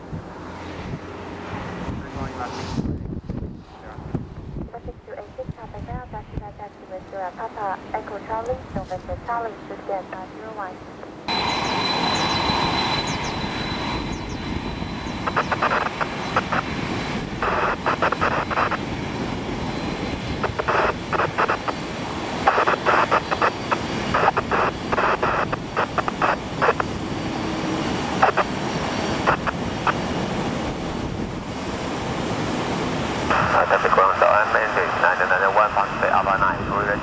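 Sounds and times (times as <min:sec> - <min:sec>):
jet engines rushing: 0:00.0 - 0:37.0
faint high whine: 0:04.7 - 0:30.2.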